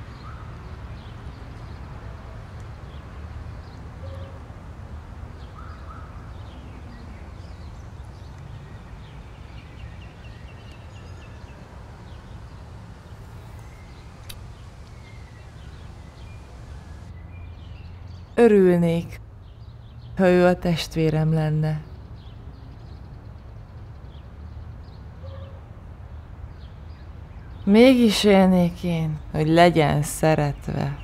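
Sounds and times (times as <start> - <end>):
faint bird chirps: 5.6 - 18.0.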